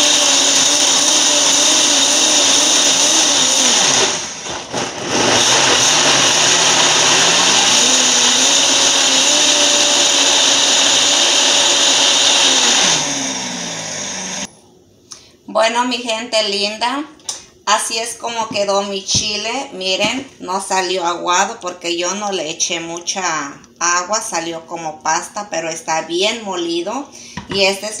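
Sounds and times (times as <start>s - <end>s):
blender grinding at high speed: 0.0s - 14.5s.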